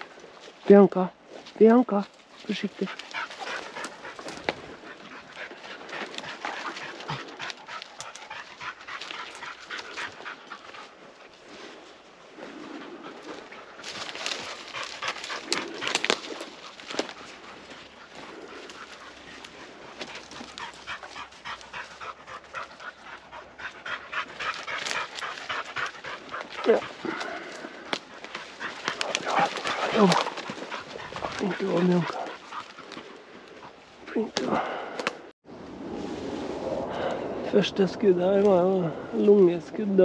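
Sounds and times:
rustling and crackling brush: 0.0 - 40.0
dog panting: 2.3 - 34.9
sharp twig crack: 14.0 - 17.2.

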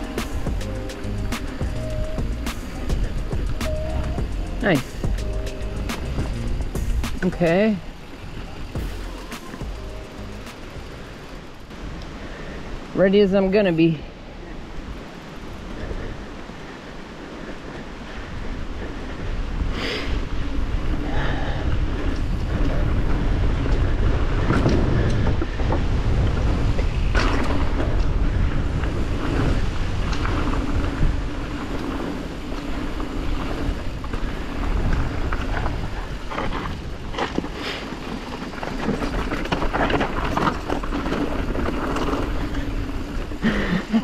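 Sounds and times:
bike knocking and rattling: 0.0 - 11.7, 21.2 - 44.0
low rumble: 0.0 - 12.0
wind on microphone: 0.0 - 44.0.

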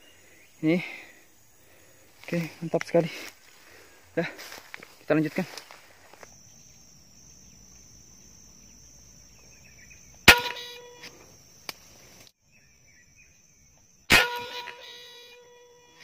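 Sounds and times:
high-pitched insect drone: 0.0 - 16.0
air rifle shot: 10.3 - 10.8, 14.1 - 14.9.

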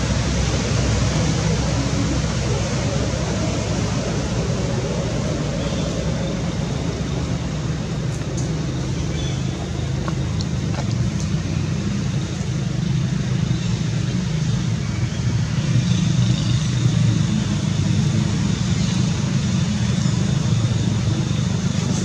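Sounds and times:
motor traffic rumble: 0.0 - 22.0.

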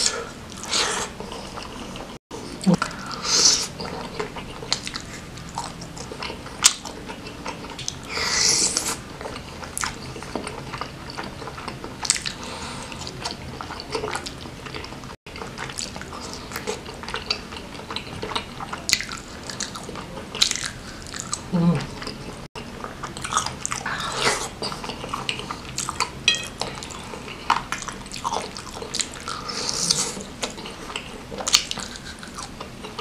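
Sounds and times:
person chewing with wet mouth clicks: 22.8 - 33.0.

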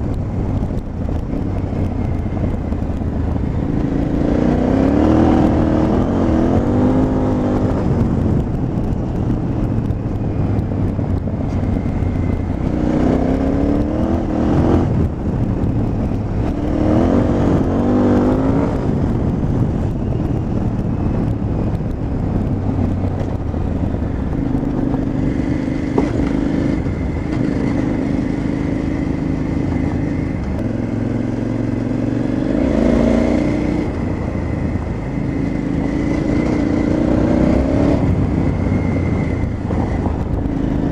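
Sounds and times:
motorcycle engine revving: 0.0 - 40.9
wind noise: 0.0 - 40.9.

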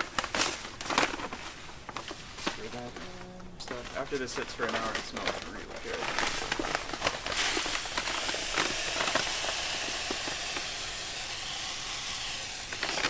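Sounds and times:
paper bag crinkling: 0.0 - 13.0
grain pouring into water: 5.8 - 13.0.

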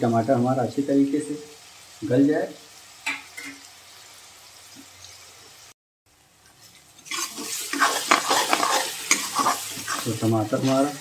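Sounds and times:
food sizzling in a pan: 0.0 - 11.0
metal ladle scraping a pan: 6.6 - 11.0.

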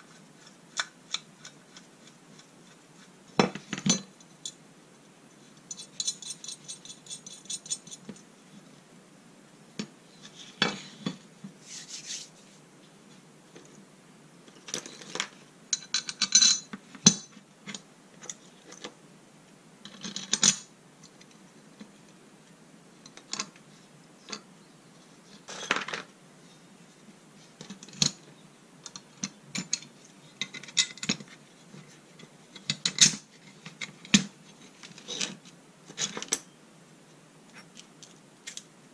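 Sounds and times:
small metal parts jingling: 5.7 - 8.0
metal parts clinking and scraping: 5.7 - 8.1.

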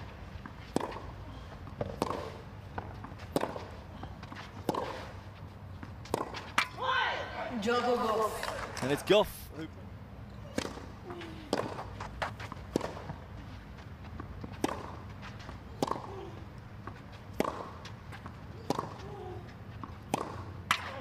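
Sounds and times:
racket striking tennis ball: 0.0 - 7.1, 10.5 - 10.9, 11.5 - 13.4, 14.1 - 21.0
tennis ball bouncing: 0.0 - 7.4, 10.4 - 21.0.

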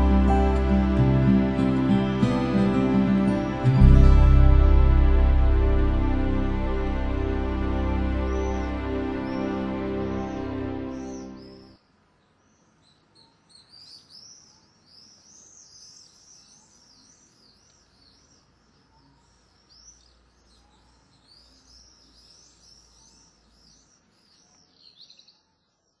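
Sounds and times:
birdsong chirps and twitters: 8.1 - 26.0.

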